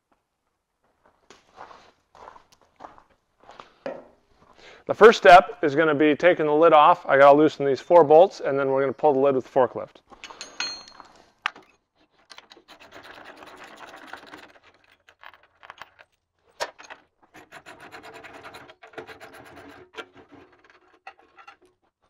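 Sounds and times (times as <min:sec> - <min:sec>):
steel tools clinking on metal: 0:10.2 - 0:11.1.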